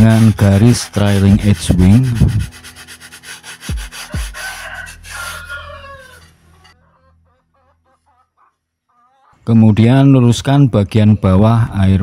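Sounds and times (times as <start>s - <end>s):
sandpaper rubbing on wood: 0.0s - 5.8s
rooster crowing: 4.0s - 6.8s
chickens clucking: 4.1s - 9.6s.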